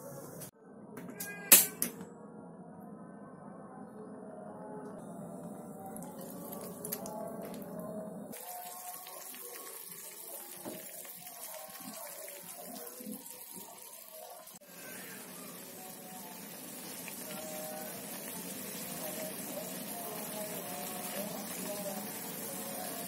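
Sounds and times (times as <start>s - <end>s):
paste sizzling in a frying pan: 8.4s - 23.0s.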